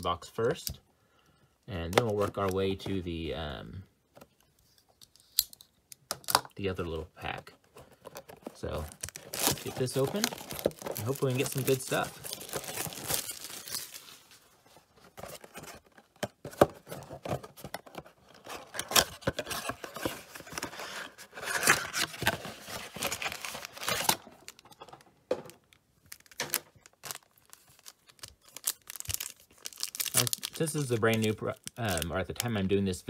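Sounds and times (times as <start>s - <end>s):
foil pack crinkling: 7.9s - 14.5s, 21.5s - 24.9s, 26.0s - 32.7s
plastic wrap tearing: 8.5s - 14.4s, 21.5s - 24.7s, 26.1s - 32.5s.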